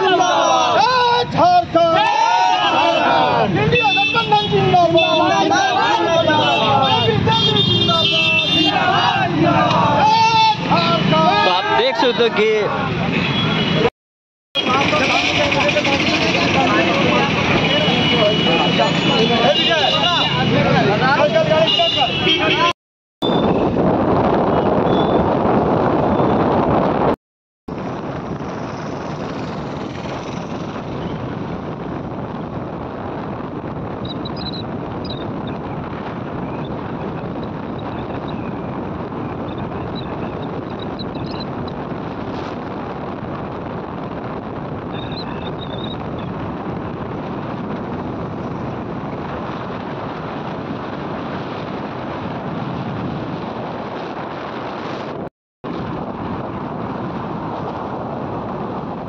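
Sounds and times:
road noise from moving vehicle: 0:00.0 - 0:13.9, 0:14.6 - 0:59.0
wind rushing over microphone: 0:20.4 - 0:59.0.

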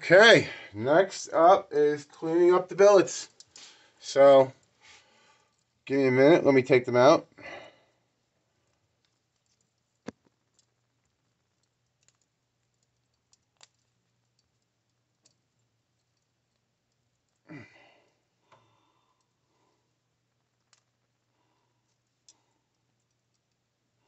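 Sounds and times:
small metal clicks and taps: 0:08.7 - 0:14.5, 0:20.6 - 0:21.0.

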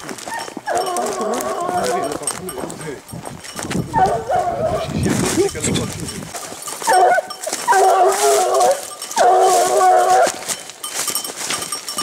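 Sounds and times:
hound baying: 0:00.3 - 0:02.7, 0:03.8 - 0:05.0, 0:06.4 - 0:10.6.

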